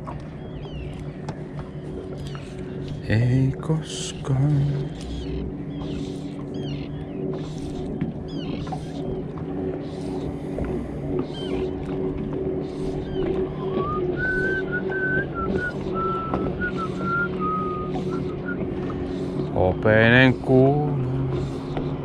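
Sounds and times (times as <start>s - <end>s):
low boat motor hum: 0.0s - 22.0s
person whistling a tune: 13.6s - 18.6s.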